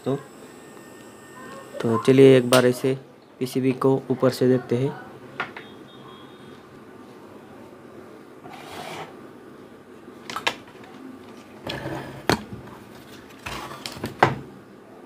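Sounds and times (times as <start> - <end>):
circuit board scraping and rustling: 8.5 - 9.2, 11.3 - 14.0.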